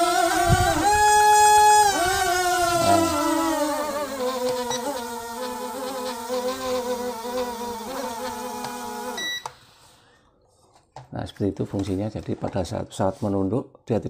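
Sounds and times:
drone motors buzzing whine: 0.0s - 9.5s.

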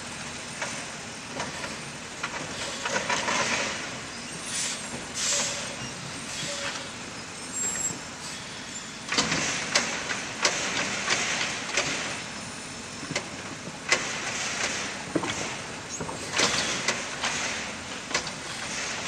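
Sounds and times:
garbage truck running: 7.4s - 19.0s.

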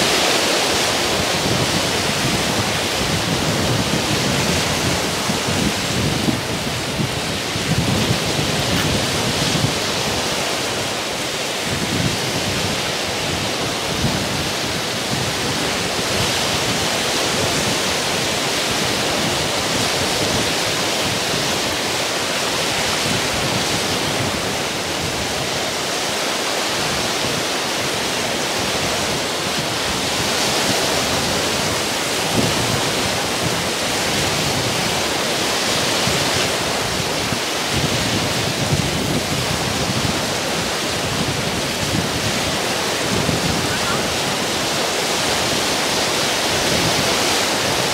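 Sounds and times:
waves breaking on rocky shore: 0.0s - 47.9s
wind buffeting microphone: 0.0s - 47.9s.

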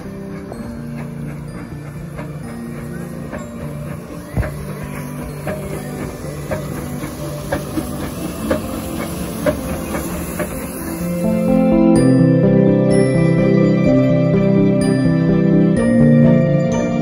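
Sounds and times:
steady hiss: 0.0s - 12.6s
background music with soft beat: 0.0s - 17.0s.

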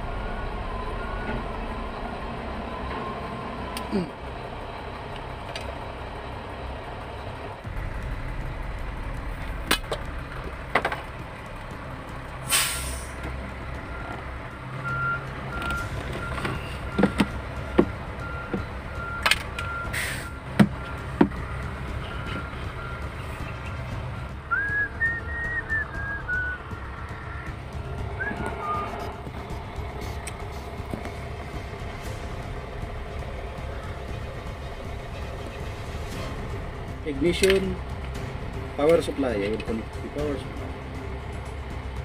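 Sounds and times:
reversing alarm beeping: 0.0s - 3.8s, 13.8s - 23.1s
truck engine running: 0.0s - 42.0s
sharp clicks and knocks: 9.1s - 11.8s, 15.6s - 19.8s
air hissing: 12.4s - 13.2s, 19.9s - 20.4s.

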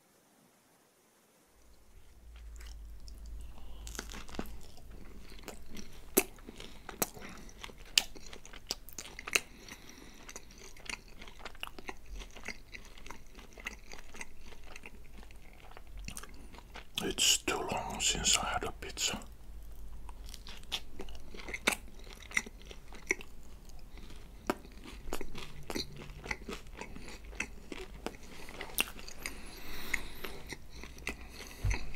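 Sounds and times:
chewing pizza crust crunching: 1.6s - 31.9s.

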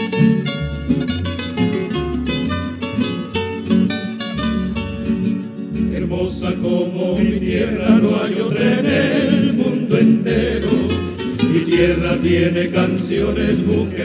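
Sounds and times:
bass line: 0.0s - 14.0s
plucked guitars: 0.0s - 14.0s
voices singing wordlessly in harmony: 5.9s - 14.0s.

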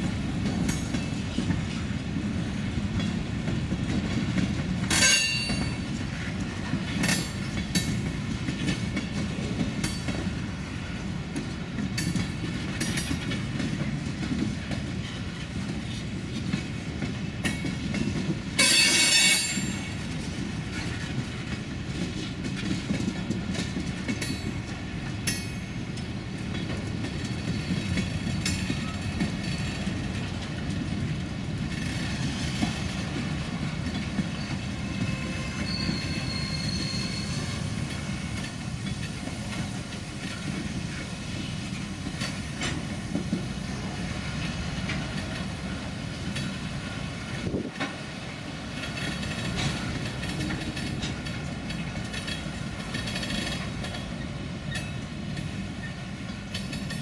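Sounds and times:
train wheels rumbling on rail: 0.0s - 57.0s
clicks and clacks: 3.8s - 10.3s, 11.4s - 34.6s, 42.0s - 43.5s, 46.2s - 46.6s, 48.8s - 55.5s, 56.3s - 57.0s
wheel squeal: 34.4s - 37.7s.

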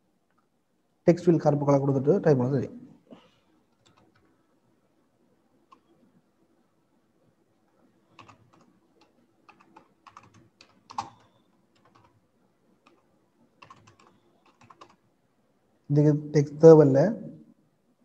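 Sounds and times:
computer keyboard typing: 3.7s - 4.4s, 5.7s - 6.0s, 8.0s - 12.2s, 12.8s - 15.0s.

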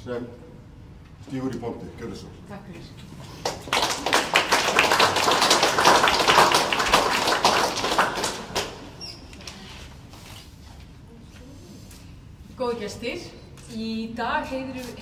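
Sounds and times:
audience applauding: 3.4s - 9.0s.

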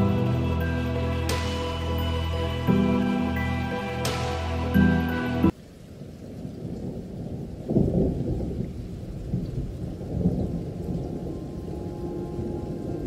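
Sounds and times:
thunder rumbling: 5.9s - 13.0s.

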